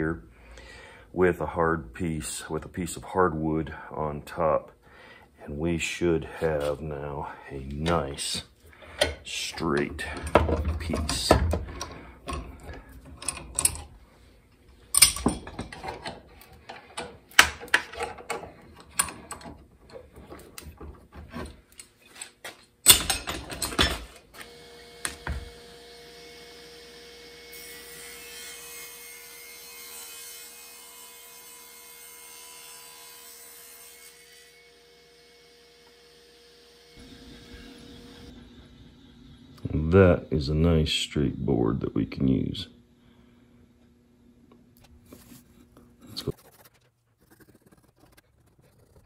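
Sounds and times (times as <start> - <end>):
steel clamps clanking: 8.9 - 13.9, 14.9 - 20.1, 21.4 - 24.2
table saw running: 32.4 - 40.0.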